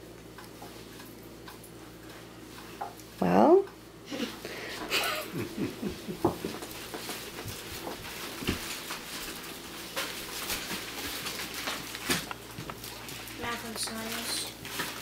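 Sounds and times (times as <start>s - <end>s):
rustling of packages and fabric: 6.4s - 15.0s.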